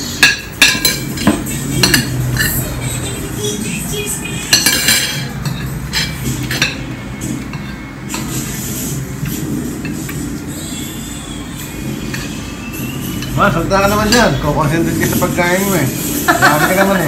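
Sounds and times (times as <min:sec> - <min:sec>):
cutlery clinking on plates: 0:00.0 - 0:02.7, 0:04.5 - 0:08.5.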